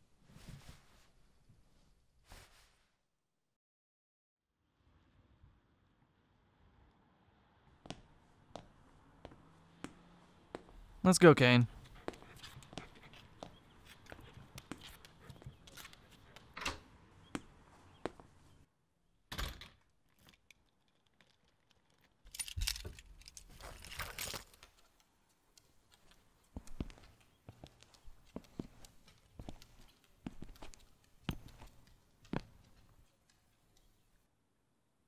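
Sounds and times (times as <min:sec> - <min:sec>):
keys jangling and clicking: 0:22.3 - 0:24.6.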